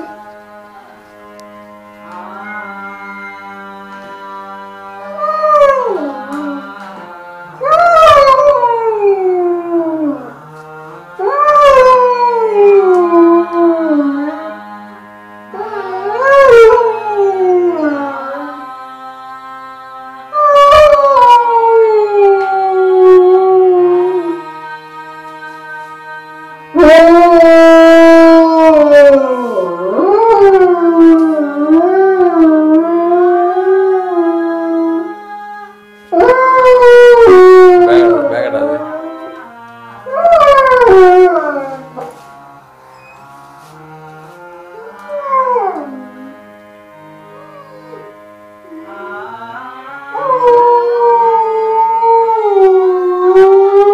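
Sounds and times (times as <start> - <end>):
background music with held notes: 0.0 - 53.9
dog howling: 5.2 - 6.7, 7.6 - 10.3, 11.2 - 14.6, 15.5 - 18.6, 20.3 - 24.4, 26.7 - 35.1, 36.1 - 39.5, 40.1 - 42.1, 44.8 - 46.4, 47.2 - 49.3, 50.1 - 53.9.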